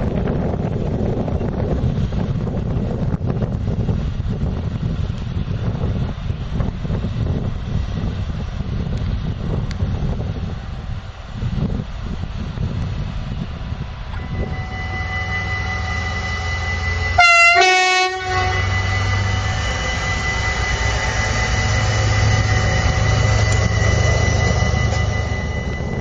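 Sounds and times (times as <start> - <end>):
diesel locomotive engine drone: 0.0 - 26.0
train rumbling past: 0.0 - 26.0
two-tone locomotive horn: 14.2 - 26.0.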